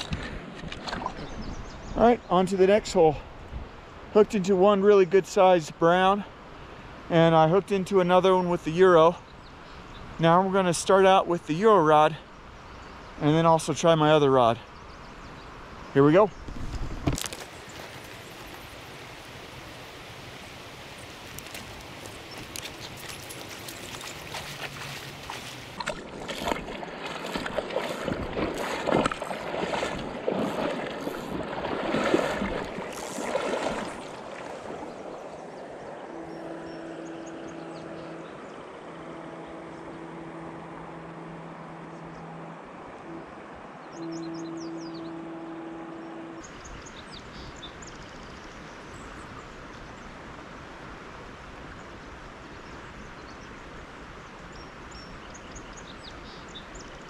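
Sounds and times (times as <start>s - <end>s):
legs wading through water: 0.0s - 1.8s, 17.2s - 45.2s
river flowing: 17.2s - 57.0s
low steady hum: 17.5s - 47.2s.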